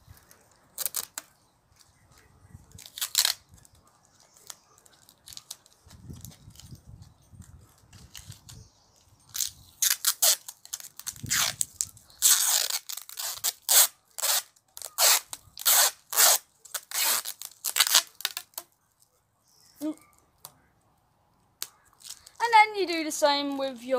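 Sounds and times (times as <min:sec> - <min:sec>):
tape pulled off roll: 0:00.2 - 0:08.7, 0:09.3 - 0:18.7.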